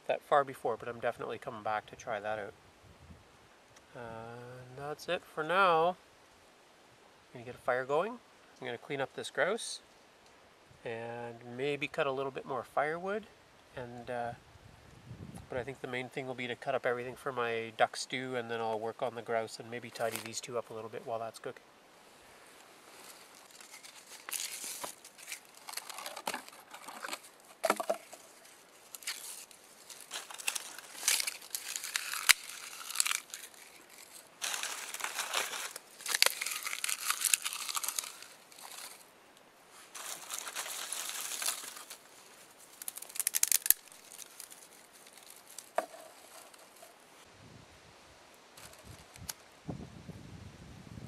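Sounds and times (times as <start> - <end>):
dry tinder crinkling by hand: 19.8 - 20.5, 22.5 - 39.1, 39.7 - 47.0, 48.6 - 49.5
twig snapping: 23.1 - 28.0, 28.9 - 39.0, 40.0 - 46.8.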